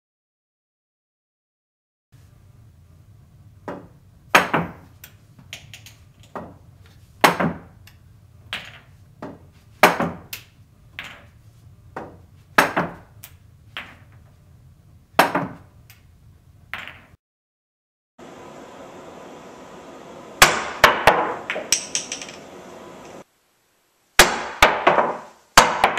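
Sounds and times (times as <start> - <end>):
balls thudding off rails: 3.6 - 14.4, 15.1 - 16.1, 16.7 - 17.2, 20.4 - 23.2, 24.5 - 25.9
pool balls clacking: 3.6 - 14.4, 16.7 - 17.2, 20.4 - 23.2, 24.6 - 25.9
cue tip striking ball: 20.4 - 22.6.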